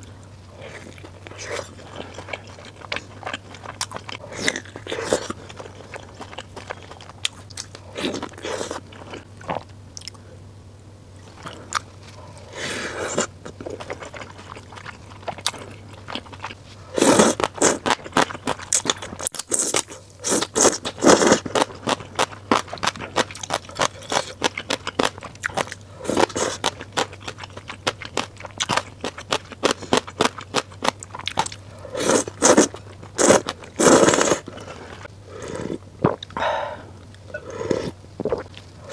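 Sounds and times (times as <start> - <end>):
person chewing: 0.0 - 10.2, 11.2 - 38.9
slurping noodles: 12.4 - 13.3, 16.9 - 18.0, 19.5 - 21.7, 31.9 - 36.2, 37.3 - 38.9.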